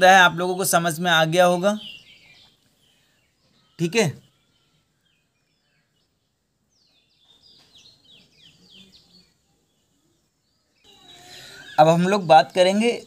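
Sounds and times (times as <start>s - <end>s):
faint bird chirps: 0.2s - 13.0s.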